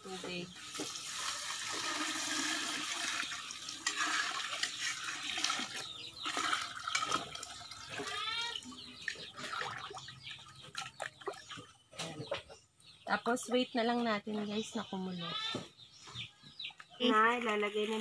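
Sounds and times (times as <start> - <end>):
water pouring into a pot: 0.6 - 8.2.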